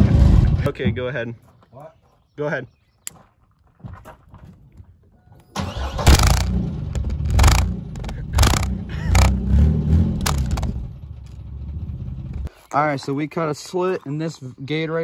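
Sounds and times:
pickup engine starting and revving: 5.6s - 12.5s.

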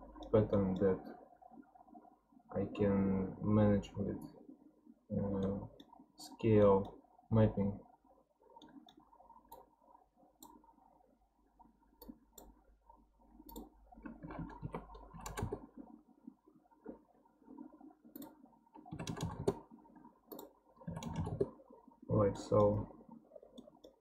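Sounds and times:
soft low noise: 0.0s - 24.0s
computer mouse clicks: 8.6s - 9.7s, 10.4s - 10.7s, 12.0s - 12.6s, 13.4s - 15.8s, 18.1s - 19.6s, 20.3s - 21.6s, 22.5s - 22.9s, 23.5s - 24.0s.

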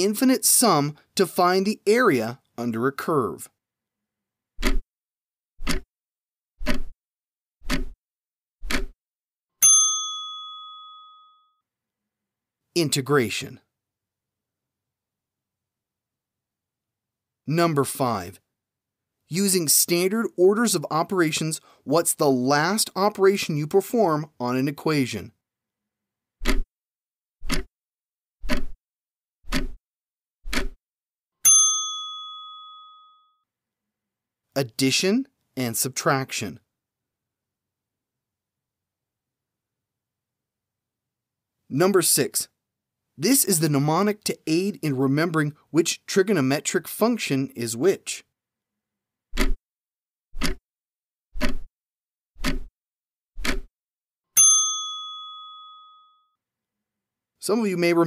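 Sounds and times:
clock ticking: 4.6s - 4.8s, 5.6s - 5.9s, 6.6s - 6.9s, 7.6s - 8.0s, 8.6s - 9.0s, 26.4s - 26.7s, 27.4s - 27.7s, 28.4s - 28.8s, 29.5s - 29.8s, 30.5s - 30.8s, 49.4s - 49.6s, 50.4s - 50.6s, 51.4s - 51.7s, 52.4s - 52.7s, 53.4s - 53.7s
bell ding: 9.6s - 11.6s, 31.4s - 33.4s, 54.4s - 56.4s.

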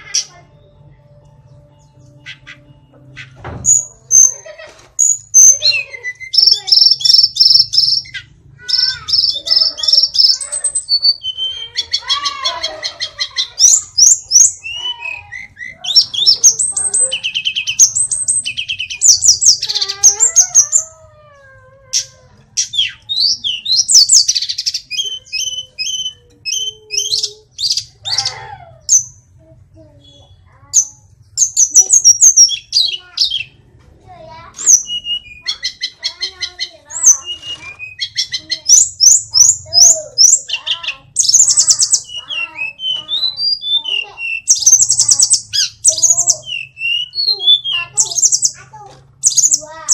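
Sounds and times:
bird singing trills and whistles: 0.0s - 4.4s, 5.0s - 20.9s, 21.9s - 29.2s, 29.9s - 33.6s, 34.5s - 49.9s.

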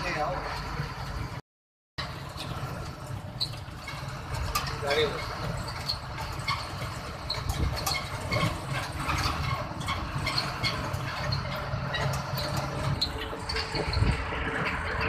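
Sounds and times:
vehicle engine and road noise: 0.0s - 1.4s, 2.0s - 15.0s
light rattles and clicks: 2.0s - 15.0s.

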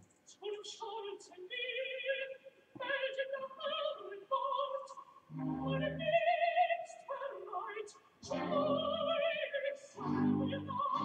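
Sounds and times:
music: 5.3s - 6.2s, 8.2s - 11.0s.

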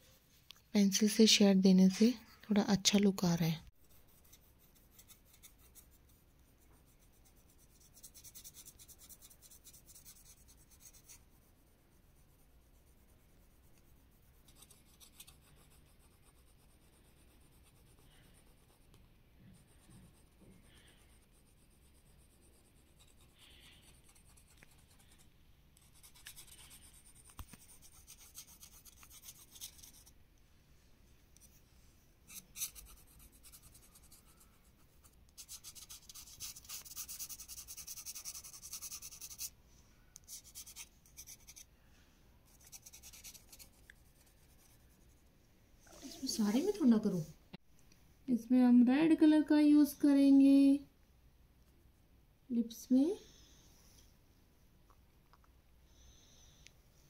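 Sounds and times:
pencil shading on paper: 3.8s - 30.2s, 32.3s - 39.6s, 40.2s - 41.7s, 42.5s - 45.2s.

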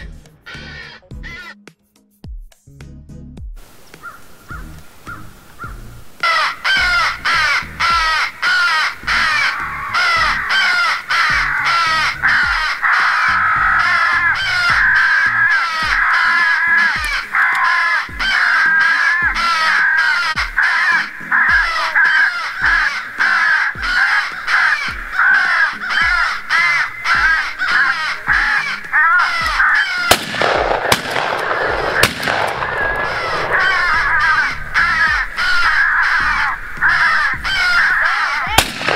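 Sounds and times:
crows cawing in chorus: 0.0s - 1.6s, 4.0s - 38.9s.

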